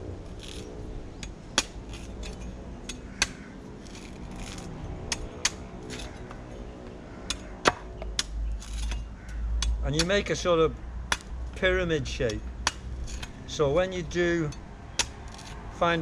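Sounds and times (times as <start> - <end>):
blade chopping coconut husk: 3.2 - 6.2, 9.9 - 10.4.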